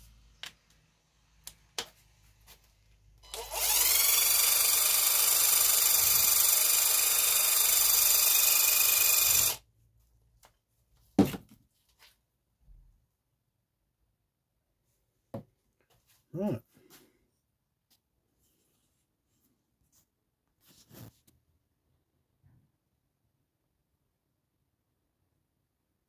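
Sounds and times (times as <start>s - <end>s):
impact wrench whirring: 3.2s - 9.6s.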